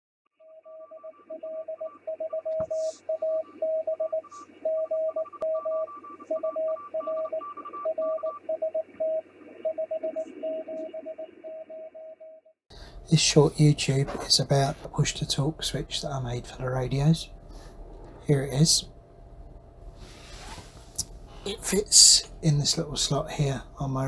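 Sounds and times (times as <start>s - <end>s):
morse code beeping tone: 0.4s - 12.2s
radio receiver hiss: 12.8s - 24.0s.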